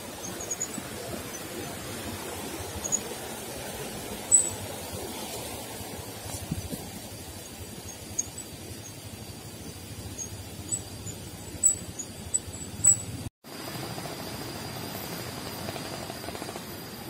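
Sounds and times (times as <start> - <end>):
bicycle tyres rumbling on wet road: 0.0 - 17.0
short high squeaks and clicks: 11.6 - 13.2.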